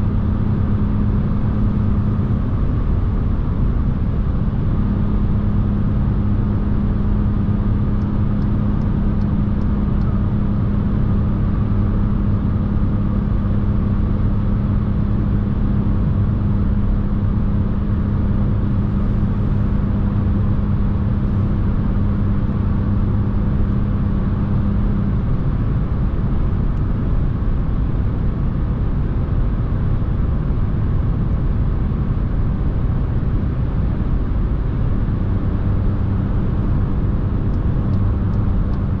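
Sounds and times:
car interior engine and road noise: 0.0s - 39.0s
steady hum: 17.6s - 24.7s.

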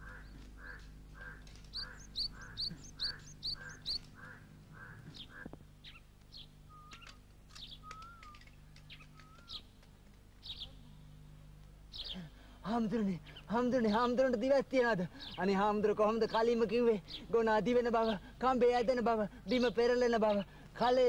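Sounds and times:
harsh bird calls: 0.0s - 9.8s, 11.9s - 21.0s
faint low hum: 0.0s - 21.0s
high bird chirps: 1.7s - 4.1s, 5.2s - 9.7s.

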